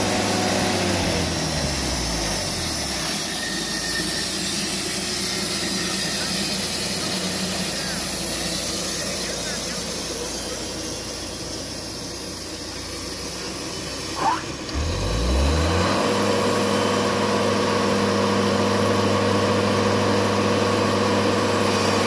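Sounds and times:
sawmill engine revving: 0.0 - 22.0
short squeak: 2.6 - 9.0.

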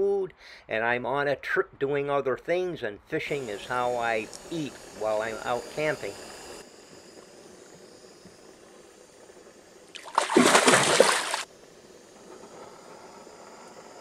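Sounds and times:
faint background hiss: 0.0 - 14.0
fish splashing in water: 9.9 - 11.5.

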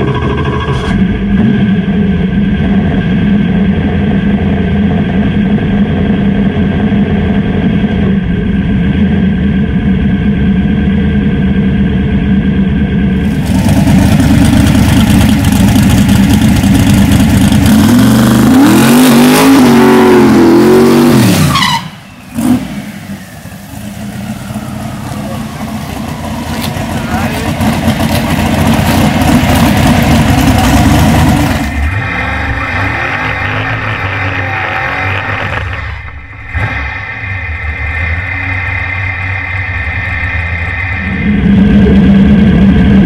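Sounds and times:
truck engine idling and revving: 0.0 - 43.0.

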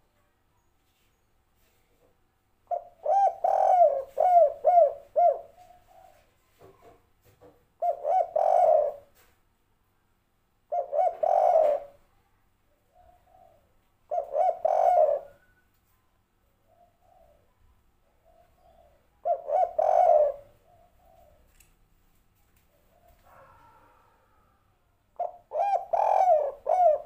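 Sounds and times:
dove cooing: 2.7 - 6.9, 7.8 - 9.2, 10.7 - 12.0, 12.9 - 15.6, 16.7 - 21.6, 22.7 - 24.5, 25.2 - 27.0.

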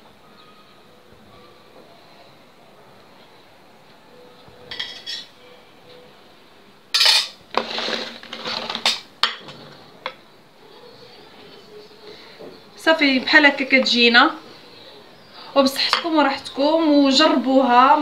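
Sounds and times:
metal spatula scraping a tin: 7.0 - 9.0.

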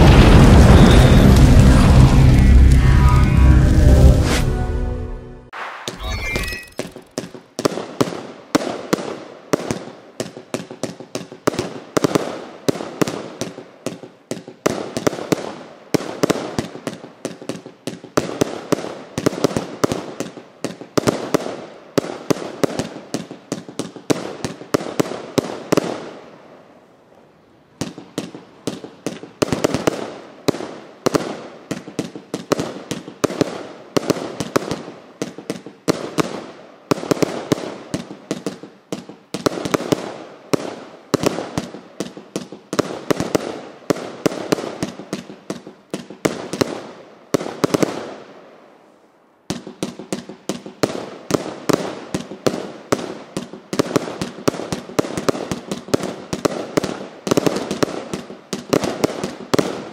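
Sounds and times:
firework shots and aerial bursts: 0.0 - 26.5, 27.8 - 48.1.

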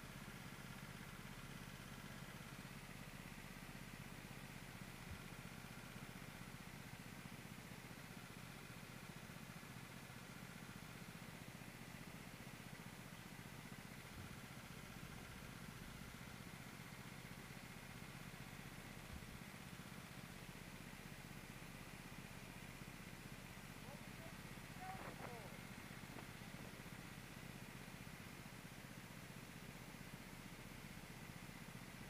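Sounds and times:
muffled kart engine drone: 23.7 - 28.3.

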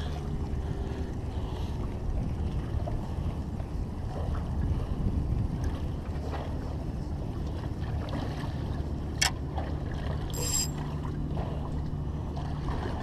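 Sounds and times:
wind rumbling on microphone: 0.0 - 13.0
high metallic ring: 10.3 - 10.8.

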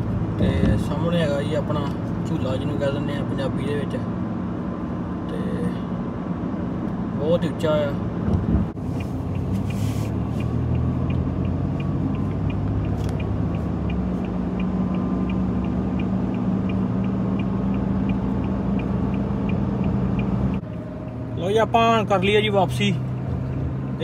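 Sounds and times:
engine and road hum: 0.0 - 24.0
faint light ticking: 8.9 - 24.0.

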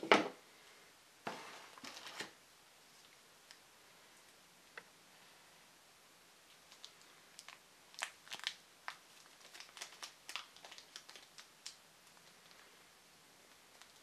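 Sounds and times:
plastic bag crinkling: 6.7 - 12.7, 13.7 - 14.0.

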